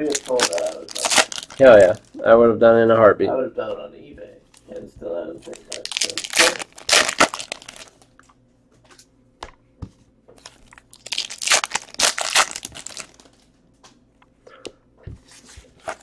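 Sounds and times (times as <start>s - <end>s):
wrapper crinkling: 0.0s - 2.2s, 5.5s - 8.1s, 10.4s - 13.5s.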